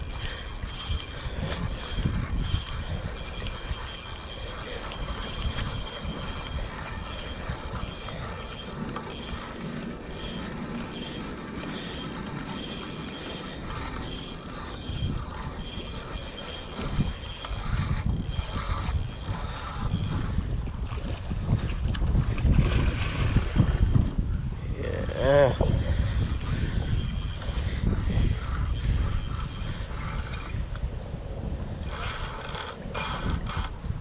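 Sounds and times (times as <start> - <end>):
fishing reel gears whirring: 0.0 - 34.0.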